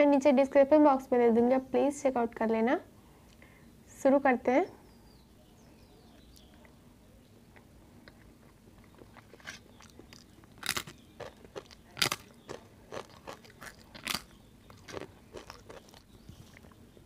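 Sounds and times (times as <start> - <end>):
crisp papadum crunching: 8.1 - 17.0.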